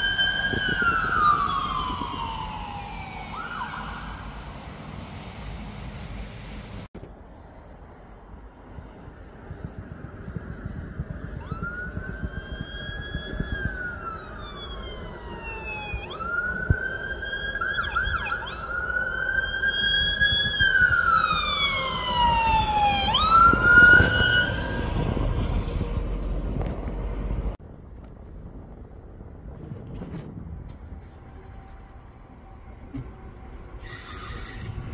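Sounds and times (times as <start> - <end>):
emergency siren wailing: 0.0 - 4.6, 10.3 - 27.2
engine and road noise: 0.0 - 34.9.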